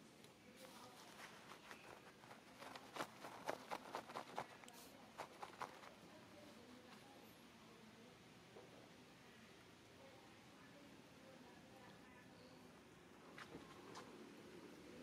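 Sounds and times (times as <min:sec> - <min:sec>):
faint clicks and rustles: 0:00.0 - 0:07.5, 0:11.8 - 0:15.0.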